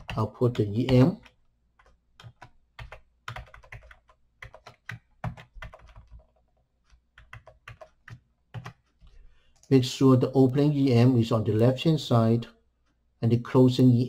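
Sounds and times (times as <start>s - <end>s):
computer keyboard typing: 0.0s - 9.8s.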